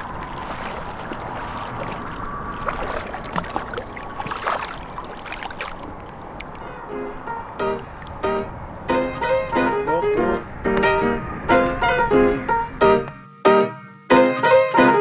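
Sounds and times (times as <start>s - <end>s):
splashes in water: 0.0s - 6.6s
river water flowing: 0.0s - 13.1s.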